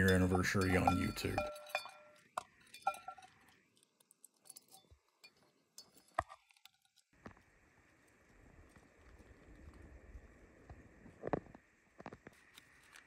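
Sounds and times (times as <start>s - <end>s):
metal bowl clinking: 0.0s - 3.6s, 4.3s - 7.0s.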